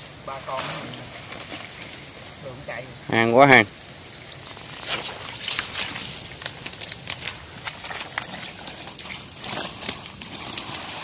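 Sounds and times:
dry twigs rustling and crackling: 0.3s - 2.4s, 3.8s - 11.0s.

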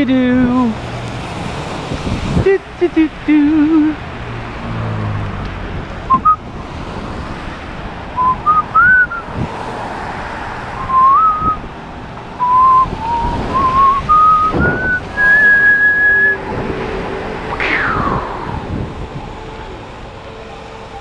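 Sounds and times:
wind on microphone: 1.7s - 2.7s, 8.2s - 9.7s, 10.8s - 11.8s, 12.4s - 19.9s
person whistling a tune: 6.1s - 6.4s, 8.2s - 9.3s, 10.8s - 11.6s, 12.4s - 16.4s.

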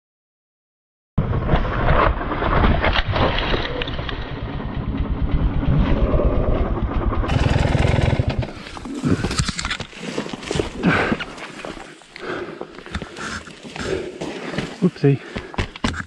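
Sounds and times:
tyre spinning in loose dirt: 1.3s - 11.9s
dirt bike engine revving hard: 7.3s - 8.6s.

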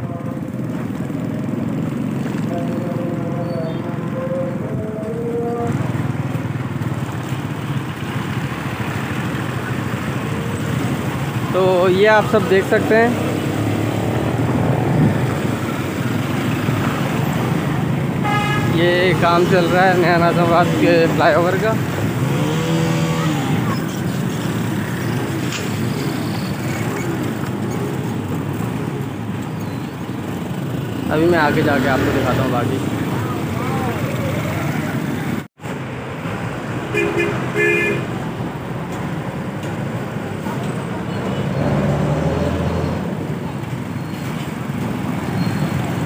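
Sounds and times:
motorcycles and cars passing: 0.0s - 46.0s
steady traffic din: 0.0s - 46.0s
rushing wind noise: 13.2s - 18.8s.

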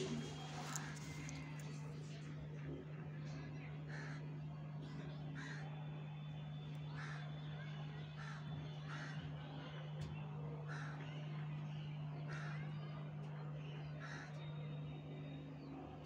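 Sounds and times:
birds cawing: 0.0s - 1.5s, 7.0s - 7.3s, 8.2s - 9.3s, 14.0s - 14.4s
steady low hum: 0.0s - 16.0s.

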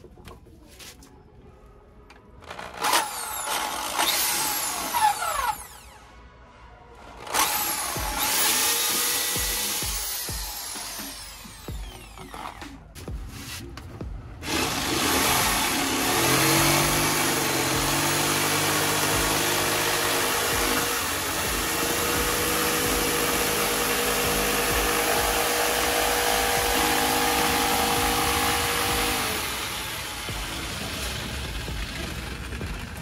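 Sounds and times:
electric jigsaw cutting wood: 2.4s - 6.0s, 7.2s - 12.7s, 14.4s - 33.0s.

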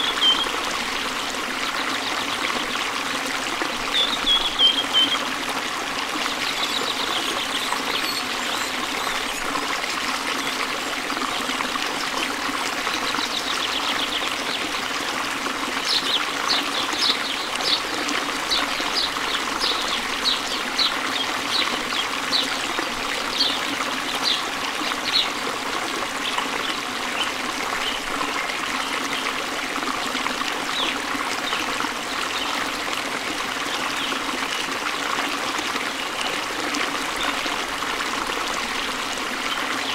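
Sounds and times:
bird chirping: 0.0s - 0.5s, 4.0s - 5.2s
water trickling: 0.0s - 39.9s.

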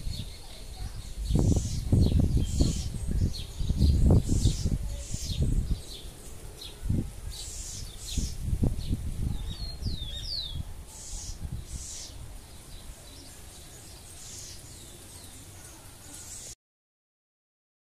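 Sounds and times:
low microphone rumble: 0.0s - 14.0s
wren singing: 0.0s - 16.6s.

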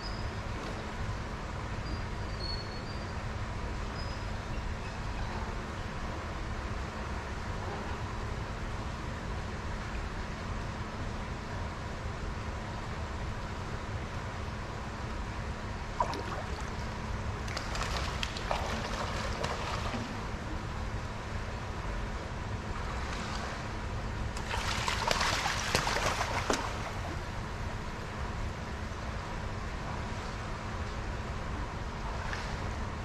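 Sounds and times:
steady low hum: 0.0s - 33.0s
water splashing: 16.0s - 20.3s, 24.4s - 27.4s.

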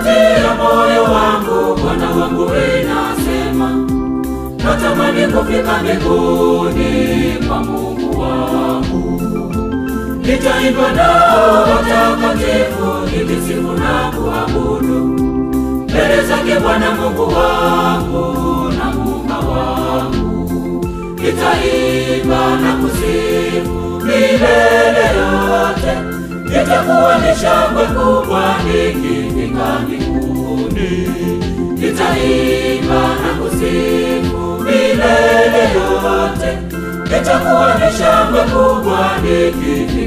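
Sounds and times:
choir singing gospel: 0.0s - 40.0s
instrumental backing music: 0.0s - 40.0s.

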